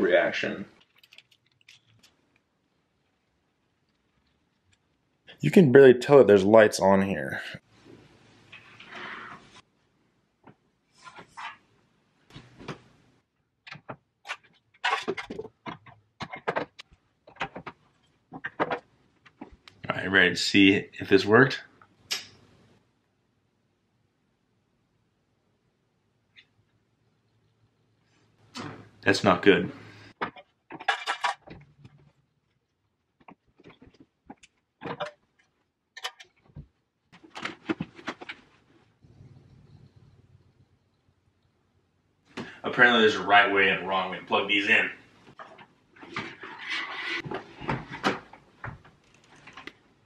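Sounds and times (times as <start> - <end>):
small objects clicking and knocking: 0.7 - 5.0
clicks knocks and rustles: 13.6 - 19.6.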